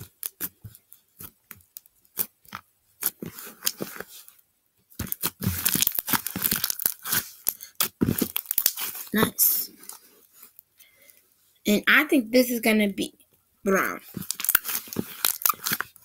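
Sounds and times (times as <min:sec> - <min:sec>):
slime popping and crackling: 0:05.0 - 0:09.6, 0:13.7 - 0:16.0.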